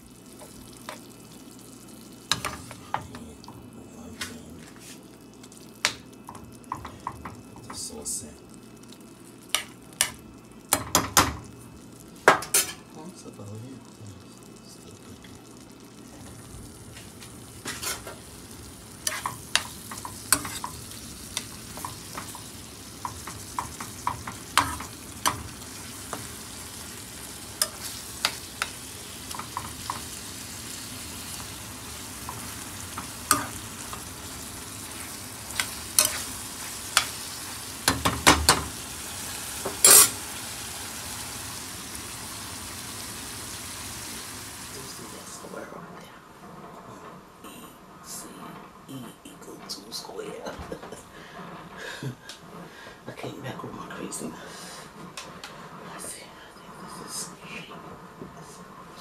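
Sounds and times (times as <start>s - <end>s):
meat sizzling in a frying pan: 0.0s - 3.7s, 4.8s - 45.7s
spoon scraping a pan: 17.6s - 18.2s, 19.0s - 26.3s, 27.6s - 30.1s, 32.2s - 37.4s, 39.6s - 40.2s.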